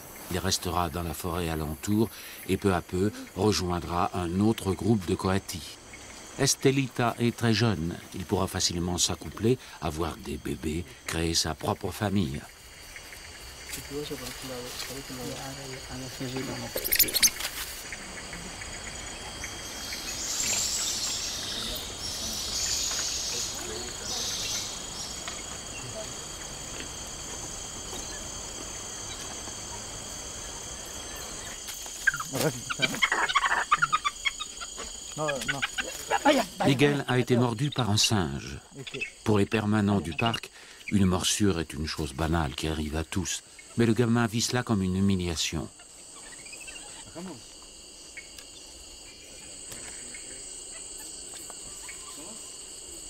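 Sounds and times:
insects chirring: 0.0 - 53.0.

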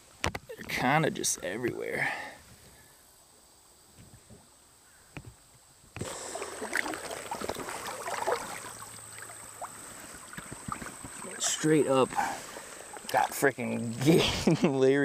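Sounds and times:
creek water splashing: 6.0 - 14.9.

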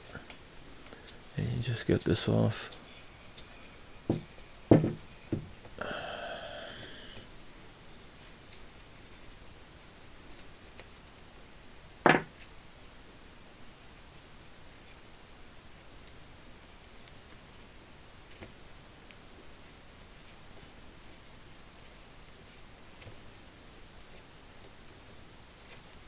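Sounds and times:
sharp knock: 4.1 - 5.5, 12.0 - 12.3.

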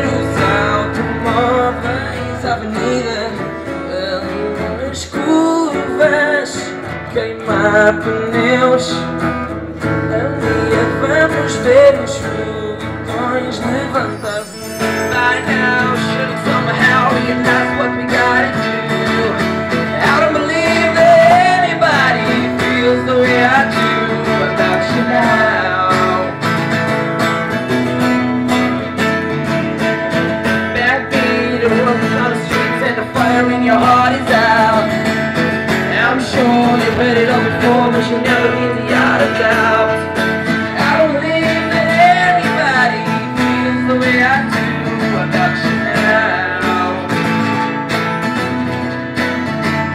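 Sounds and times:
acoustic guitar strumming: 0.0 - 49.9
boy singing into microphone: 35.9 - 40.2.

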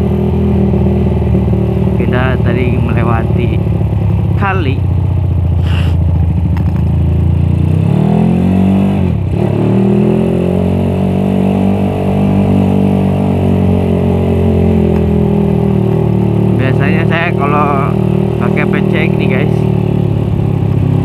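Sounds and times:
motorcycle engine revving: 0.0 - 21.0.

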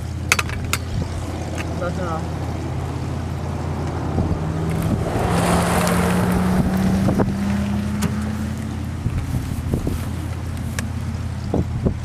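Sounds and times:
vehicle engine hum: 0.0 - 12.0
wind rushing over microphone: 2.7 - 10.3.

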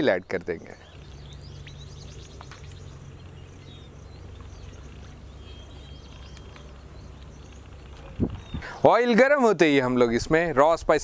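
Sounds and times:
faint birds chirping: 0.0 - 10.7
low outdoor rumble: 0.0 - 11.0
soft clicks: 6.1 - 8.0.

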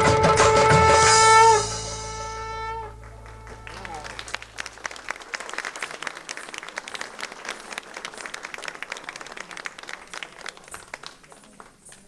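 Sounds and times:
audience applause: 3.0 - 12.0.

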